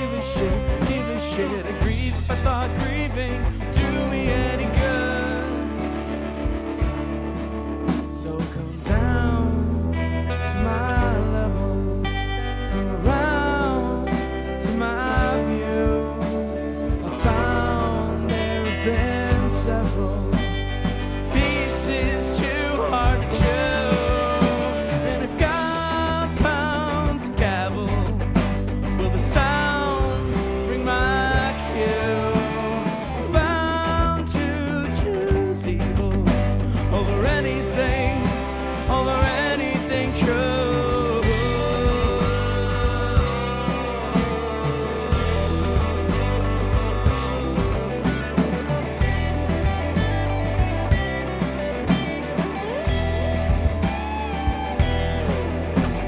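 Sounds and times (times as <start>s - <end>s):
male lead vocal: 0.0s - 6.8s, 7.9s - 50.0s
live band playing: 0.0s - 56.0s
steady drum hits: 14.3s - 56.0s.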